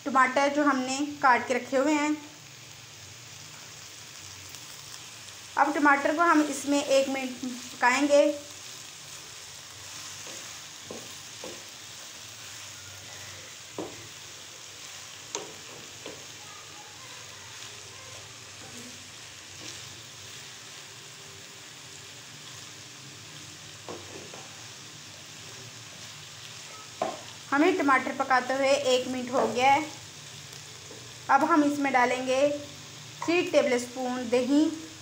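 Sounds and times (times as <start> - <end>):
vegetables sizzling in oil: 0.0 - 35.0
wooden spatula stirring: 9.8 - 14.2.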